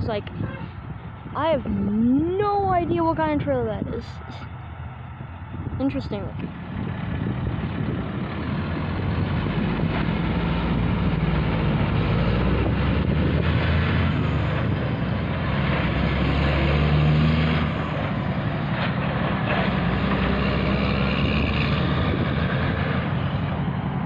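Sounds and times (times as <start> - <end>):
road noise: 0.0 - 24.0
truck diesel engine driving past: 0.0 - 24.0.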